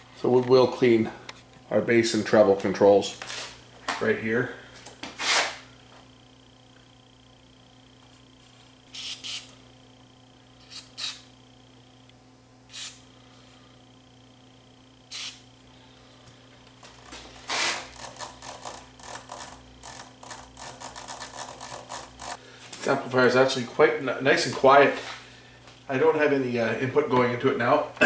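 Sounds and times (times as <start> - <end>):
scratchy rubbing of control shafts: 16.9 - 22.4.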